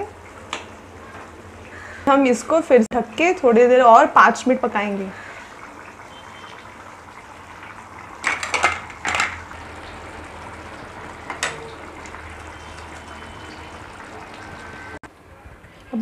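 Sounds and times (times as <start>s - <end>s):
metal kitchenware clattering on pan: 8.2s - 9.4s.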